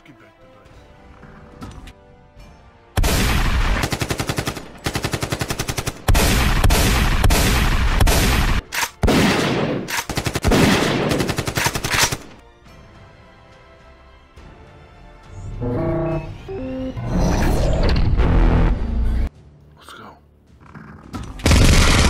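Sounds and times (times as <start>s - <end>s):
faint background music: 0.0s - 17.8s, 18.8s - 22.0s
automatic rifle gunfire bursts: 3.0s - 12.4s.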